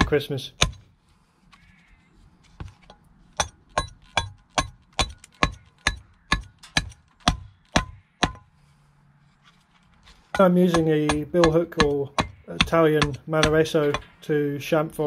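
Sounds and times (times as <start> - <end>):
billhook chopping wood: 0.0 - 0.9, 3.4 - 8.4, 10.4 - 14.2.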